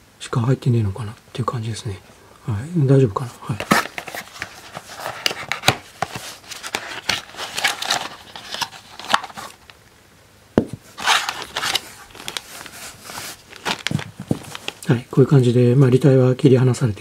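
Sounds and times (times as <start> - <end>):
hard plastic case crinkling: 3.5 - 9.8, 10.8 - 15.0
plastic bag crinkling: 3.5 - 9.8, 10.9 - 15.0
rustling: 3.5 - 9.8, 10.8 - 15.0.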